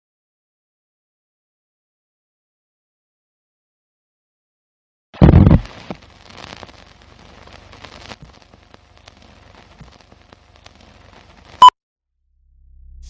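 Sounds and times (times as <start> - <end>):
old film crackle and pops: 5.2 - 11.7.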